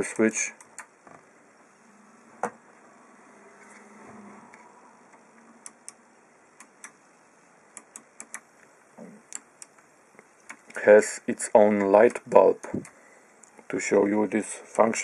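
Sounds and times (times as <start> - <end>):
push-button switches clicking: 7.8 - 8.5.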